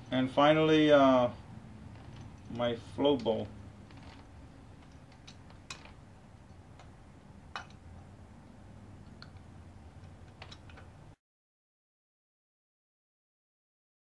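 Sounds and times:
light metallic clicks and taps: 0:09.0 - 0:11.0.

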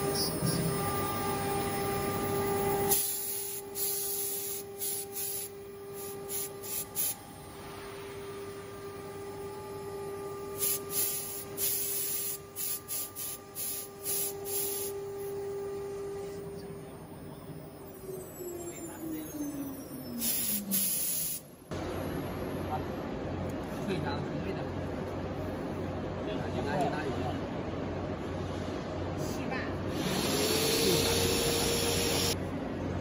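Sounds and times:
short hissing bursts: 0:02.9 - 0:07.2, 0:10.6 - 0:15.3, 0:20.2 - 0:21.5
router cutting noise: 0:29.9 - 0:32.4.

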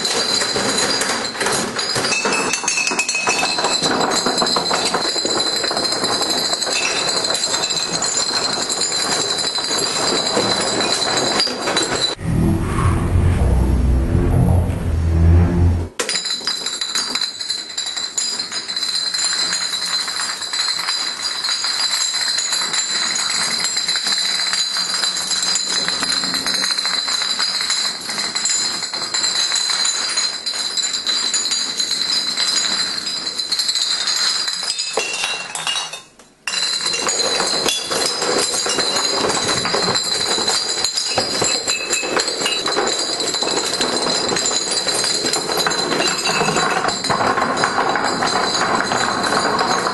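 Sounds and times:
glass bottles clattering: 0:00.0 - 0:12.2, 0:16.0 - 0:49.9.

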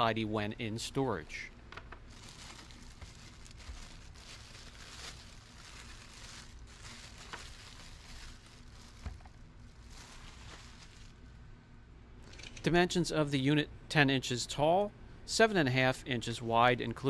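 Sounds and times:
plastic bag crinkling: 0:01.8 - 0:11.2.

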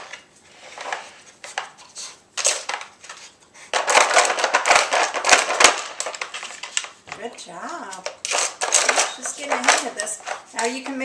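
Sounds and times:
plastic toy clattering on tile floor: 0:02.4 - 0:11.0.

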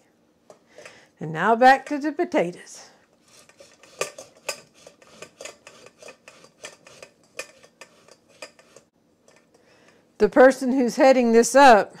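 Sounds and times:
potato scraping on metal grater: 0:03.2 - 0:08.9.

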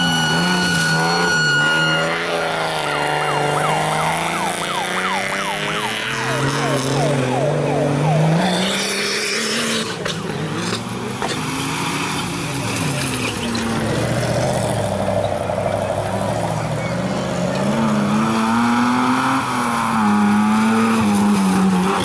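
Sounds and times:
engine revving hard: 0:00.0 - 0:15.2, 0:15.9 - 0:22.0.

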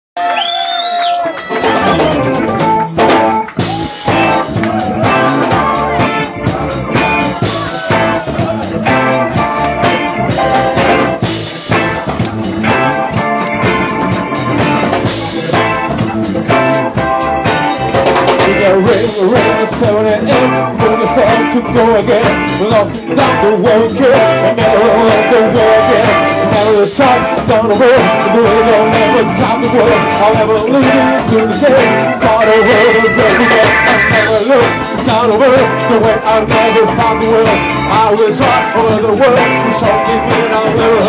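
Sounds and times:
drum kit: 0:00.2 - 0:41.0
electric guitar: 0:01.0 - 0:41.0.

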